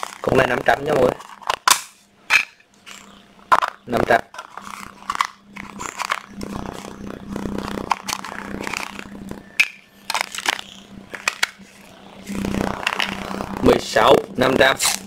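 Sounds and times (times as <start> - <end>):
low steady hum: 0.0 - 15.0
plastic battery pack handling: 1.1 - 6.9, 9.6 - 11.6.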